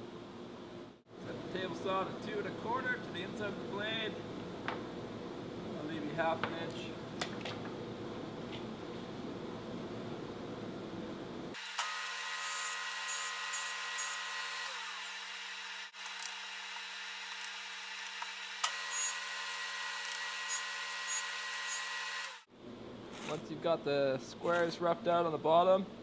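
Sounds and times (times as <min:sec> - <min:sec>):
saw cutting wood: 0:11.6 - 0:22.5
table saw whining: 0:11.6 - 0:22.5.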